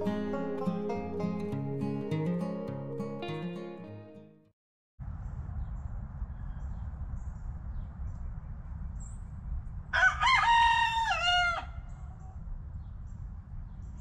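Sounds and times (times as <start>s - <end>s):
rooster crowing: 10.0s - 11.9s.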